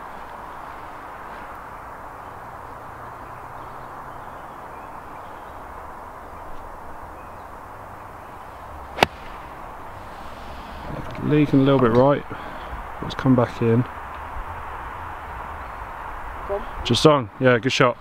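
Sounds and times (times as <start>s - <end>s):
outdoor background hiss: 0.0s - 18.0s
golf club striking ball: 8.9s - 9.8s.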